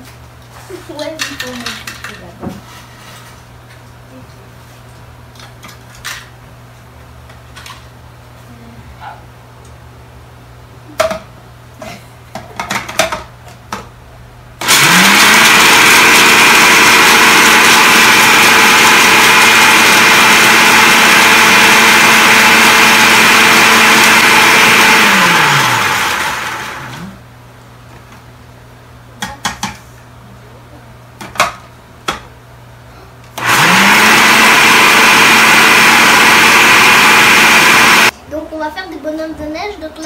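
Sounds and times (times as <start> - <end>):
food processor motor: 14.6 - 27.2, 33.3 - 38.1.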